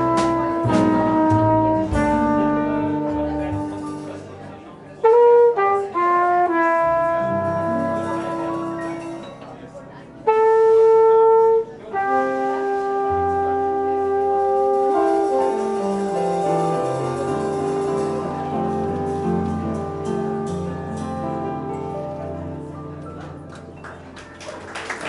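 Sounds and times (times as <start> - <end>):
jazz quintet playing a ballad: 0.0 - 23.6.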